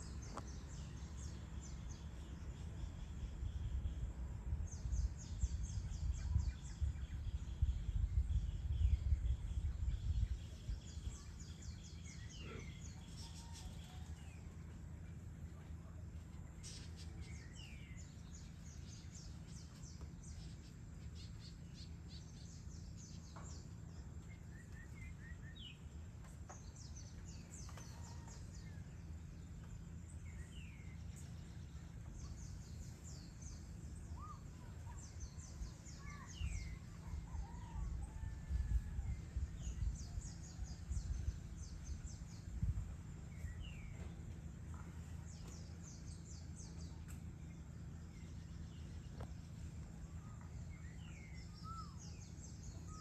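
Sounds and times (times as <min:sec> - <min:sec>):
steady low rumble: 0:00.0 - 0:53.0
birds whistling: 0:50.0 - 0:53.0.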